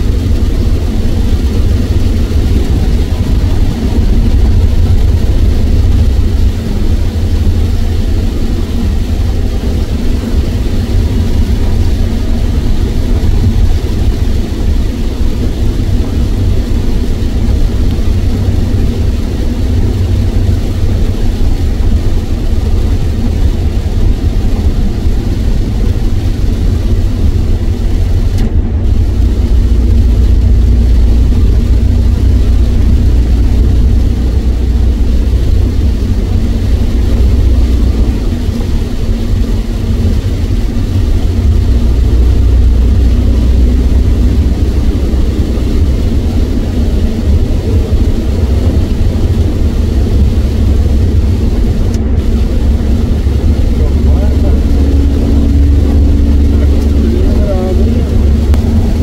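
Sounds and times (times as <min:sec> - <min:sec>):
rain and tyre spray hiss: 0:00.0 - 0:59.0
road and engine rumble: 0:00.0 - 0:59.0.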